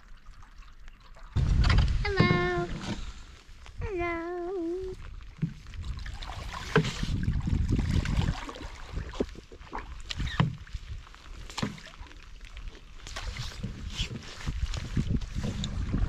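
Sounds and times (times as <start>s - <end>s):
paddles splashing in water: 4.9s - 16.0s
low rumble: 15.1s - 16.0s.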